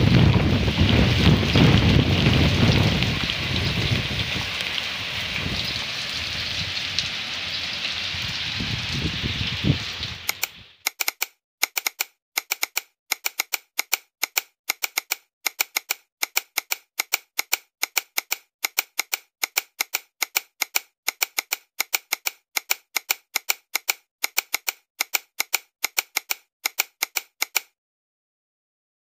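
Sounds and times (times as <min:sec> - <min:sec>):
keyboard typing clicks: 0:10.3 - 0:27.8.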